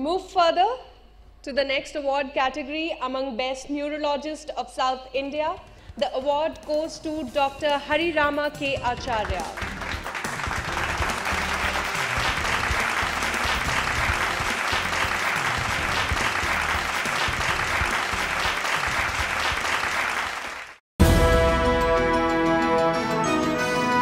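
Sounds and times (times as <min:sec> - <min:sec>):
music: 0:06.5 - 0:20.2, 0:21.0 - 0:24.0
audience applauding: 0:09.2 - 0:20.8.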